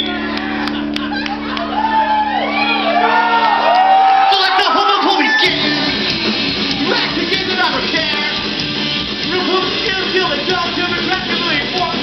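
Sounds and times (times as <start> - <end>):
ska-punk band playing live: 5.2 - 12.0.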